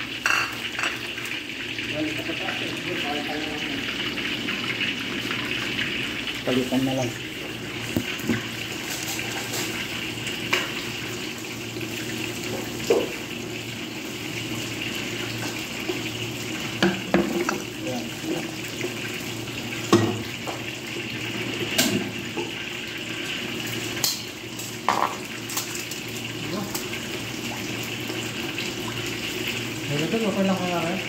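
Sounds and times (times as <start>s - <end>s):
food deep-frying in oil: 0.0s - 31.0s
utensils knocking against pan: 24.9s - 25.2s.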